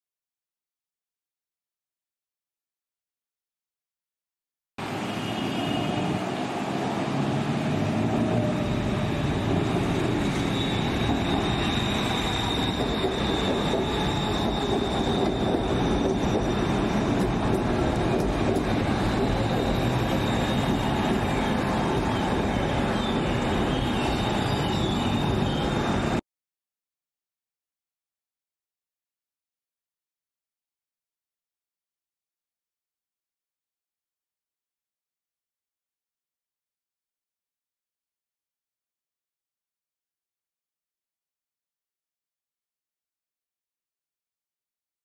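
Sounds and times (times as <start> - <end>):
train wheels rumbling on rail: 6.1 - 26.2
high wheel squeal: 7.7 - 26.2.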